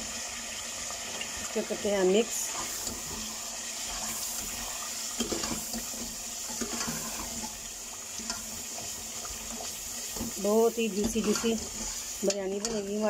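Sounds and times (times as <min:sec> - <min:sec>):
cooking pot hissing: 0:00.0 - 0:13.0
ladle scraping pot: 0:03.9 - 0:07.6, 0:11.0 - 0:12.9.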